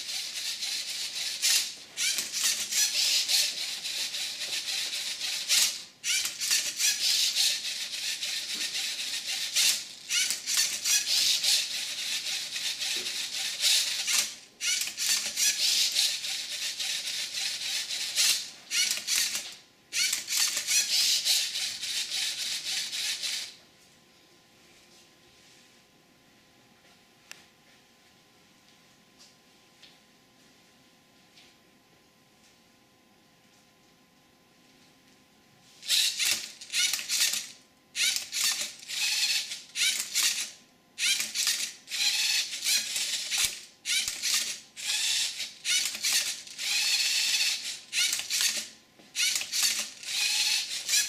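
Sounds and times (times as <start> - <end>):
servo motors and gears whirring: 35.9 - 51.0.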